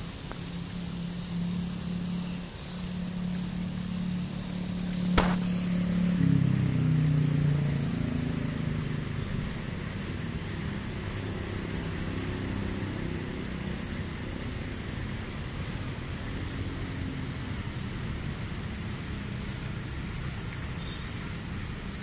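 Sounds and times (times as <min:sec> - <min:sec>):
low hum: 0:00.0 - 0:14.7
fountain water splashing: 0:00.0 - 0:22.0.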